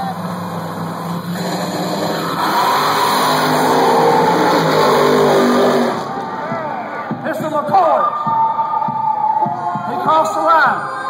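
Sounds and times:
race car engines revving: 0.0s - 7.7s.

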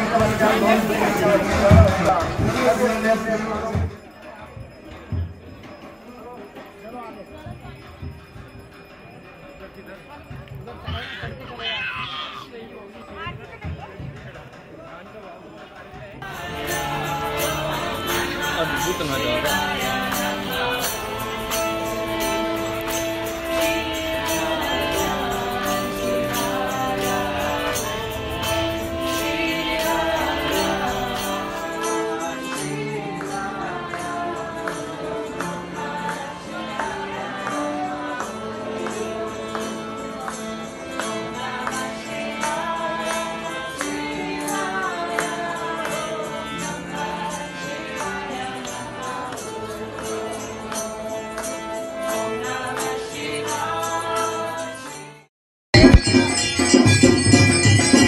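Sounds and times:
devotional group singing: 0.0s - 4.0s, 16.2s - 55.2s
jingling tambourine beat: 0.0s - 58.0s
held instrumental notes: 16.2s - 42.8s.

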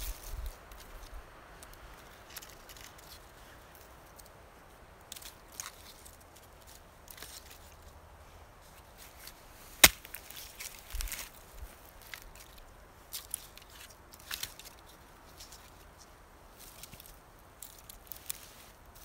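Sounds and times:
twigs rustling and clicking: 0.0s - 8.0s, 8.6s - 19.0s
sharp wood crack: 9.7s - 11.4s.

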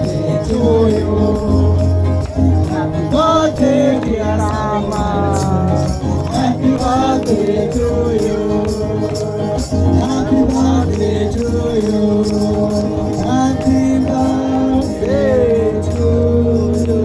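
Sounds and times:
live band music: 0.0s - 7.9s
person singing: 0.0s - 17.0s
tambourines jingling: 0.0s - 17.0s.

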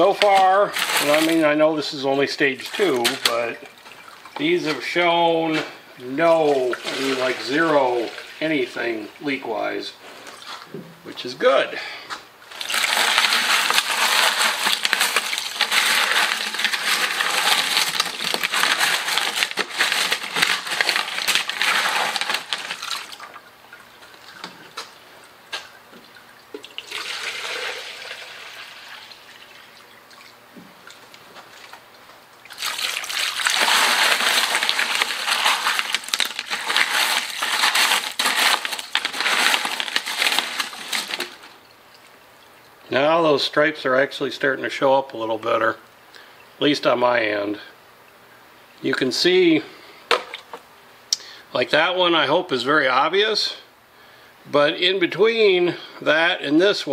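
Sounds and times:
water trickling: 2.8s - 4.5s
water pouring from a jug: 6.0s - 9.4s, 12.5s - 25.0s, 26.0s - 31.8s, 32.5s - 42.6s.

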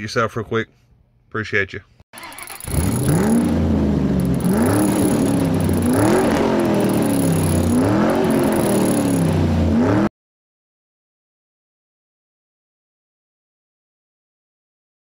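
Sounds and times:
car engine revving: 2.2s - 10.1s.

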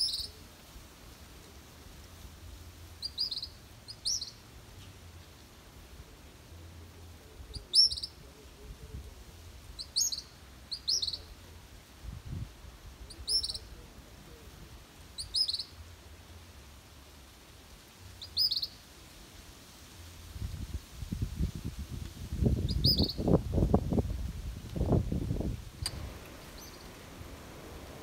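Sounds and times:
fledgling bird begging chirps: 0.0s - 0.4s, 3.0s - 4.4s, 7.5s - 8.2s, 9.8s - 11.4s, 13.1s - 13.7s, 15.2s - 15.8s, 18.2s - 18.8s, 22.7s - 23.2s, 26.4s - 27.0s.

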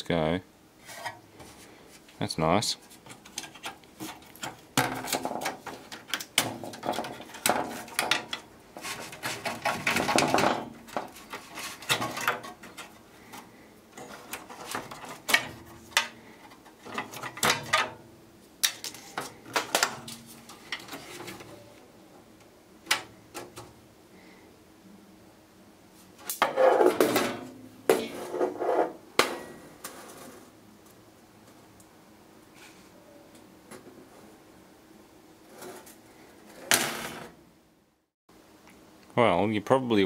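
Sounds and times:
clattering of electronic parts: 3.0s - 18.0s, 18.6s - 21.6s
rattling metal cabinet: 4.8s - 13.0s.

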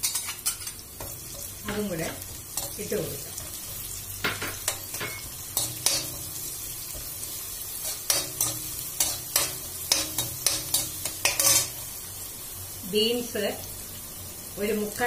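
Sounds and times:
metal spoon scraping a pan: 0.0s - 11.8s
garlic sizzling in hot oil: 0.0s - 15.0s.

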